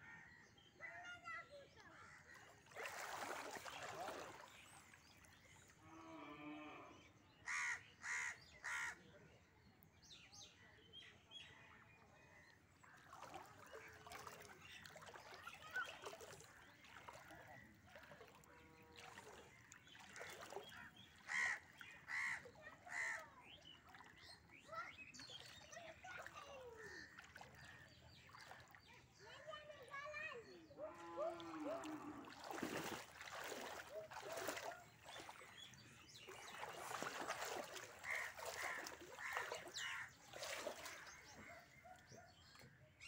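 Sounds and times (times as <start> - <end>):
crows cawing: 7.5 - 9.0, 21.2 - 23.3, 36.9 - 41.0.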